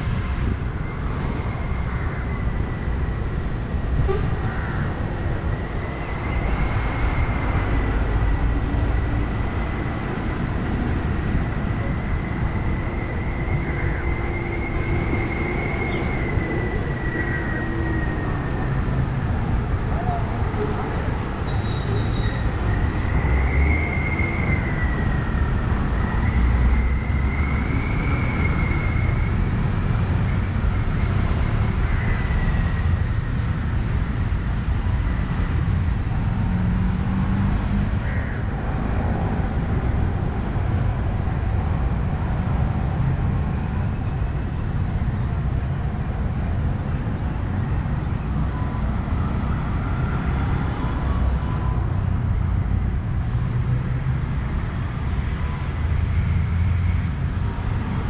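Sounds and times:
traffic rumble: 0:00.0 - 0:58.0.

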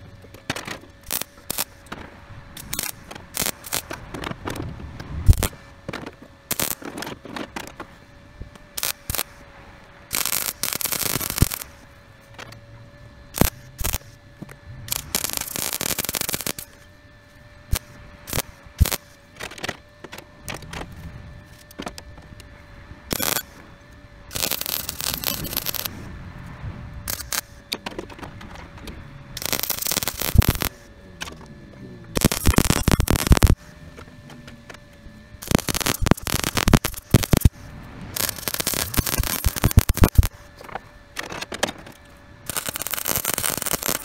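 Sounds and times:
welder buzzing: 0:00.0 - 0:44.0.

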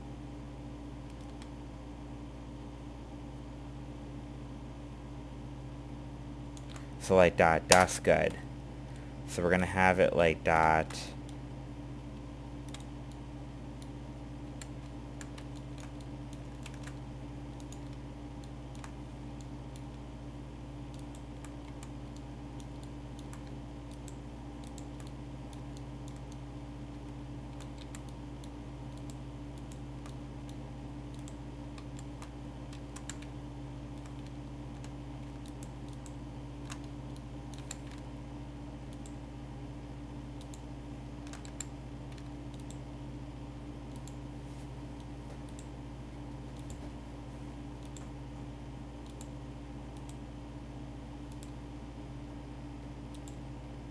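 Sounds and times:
steady low hum: 0:00.0 - 0:53.9
keyboard and mouse clicking: 0:06.6 - 0:06.8, 0:12.6 - 0:13.2, 0:14.5 - 0:17.0, 0:27.5 - 0:33.3, 0:33.9 - 0:38.0, 0:41.2 - 0:42.8.

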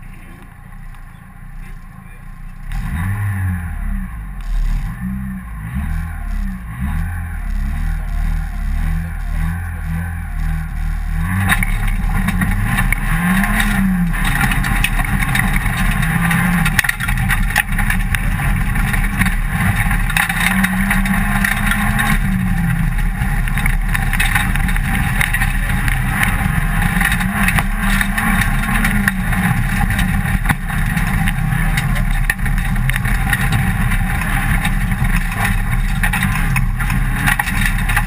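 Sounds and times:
car engine accelerating: 0:00.0 - 0:38.0
tyre noise on gravel: 0:04.3 - 0:38.0.

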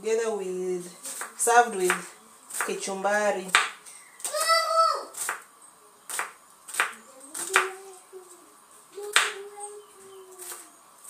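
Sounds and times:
knife chopping on wooden board: 0:05.2 - 0:05.5, 0:06.1 - 0:07.7.

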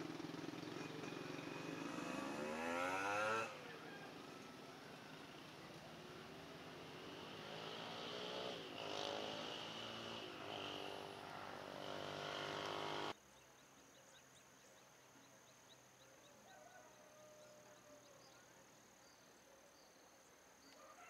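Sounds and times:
vehicle engine revving: 0:00.0 - 0:03.8, 0:06.0 - 0:13.2
faint insects buzzing and chirping: 0:00.0 - 0:21.0.

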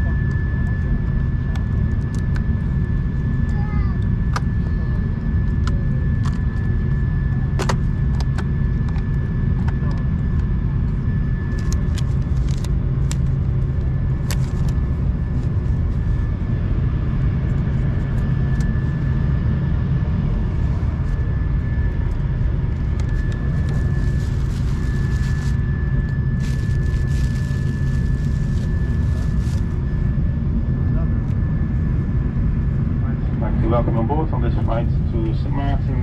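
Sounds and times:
aircraft cabin rumble: 0:00.0 - 0:36.0
thin steady whine: 0:00.0 - 0:36.0
plastic wrapping crinkling: 0:23.5 - 0:25.6, 0:26.4 - 0:29.7.

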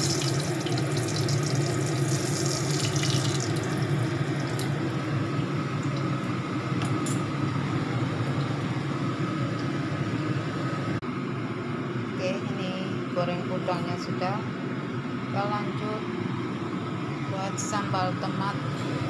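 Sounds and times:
shrimp frying in hot oil: 0:00.0 - 0:05.1.

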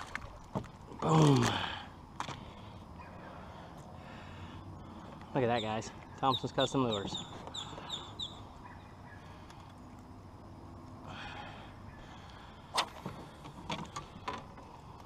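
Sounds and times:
fishing gear clicks and knocks: 0:00.0 - 0:02.4, 0:12.7 - 0:15.0.

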